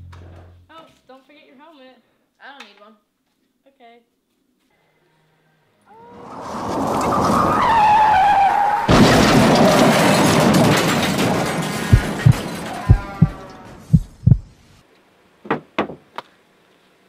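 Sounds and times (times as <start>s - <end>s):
car tyres screeching: 6.1s - 9.9s
car crash: 6.2s - 12.9s
short dull thumps: 11.9s - 14.5s.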